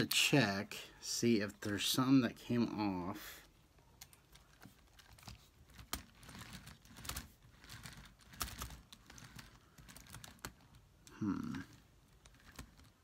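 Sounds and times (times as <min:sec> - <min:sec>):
plastic parts clicking: 0:04.0 - 0:13.0.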